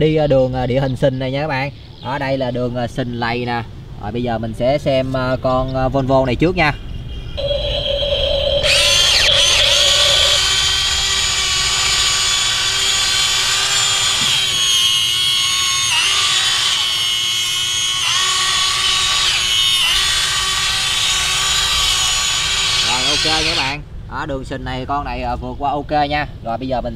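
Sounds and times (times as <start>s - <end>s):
toy excavator motors whining: 7.4s - 23.8s.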